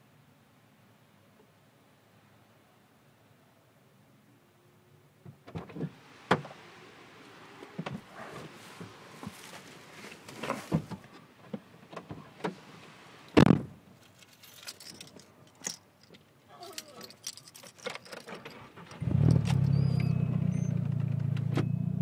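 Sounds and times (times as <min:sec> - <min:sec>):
loud thump: 0:13.4 - 0:13.8.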